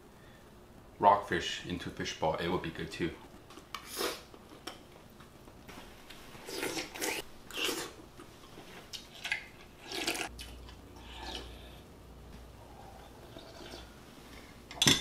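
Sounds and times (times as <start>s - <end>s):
person slurping soup: 6.4s - 8.0s, 9.8s - 10.3s, 11.0s - 11.9s, 12.6s - 13.9s.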